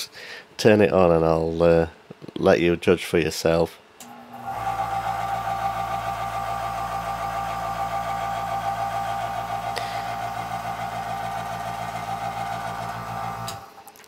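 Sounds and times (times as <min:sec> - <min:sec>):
compressor humming and rattling: 0:04.0 - 0:13.9.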